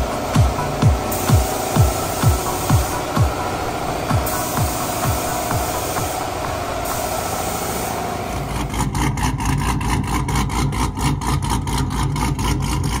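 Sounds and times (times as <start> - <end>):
steady rushing noise: 0.0 - 9.0
deep engine pulsing: 0.0 - 13.0.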